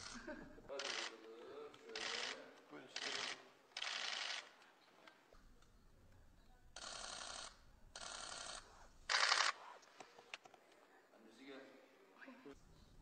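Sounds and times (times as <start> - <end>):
camera shutters clicking: 9.1 - 10.4.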